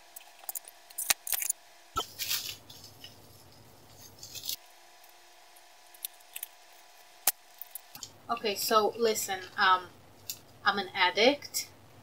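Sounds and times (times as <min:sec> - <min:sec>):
packaging rustling: 0:00.2 - 0:04.7.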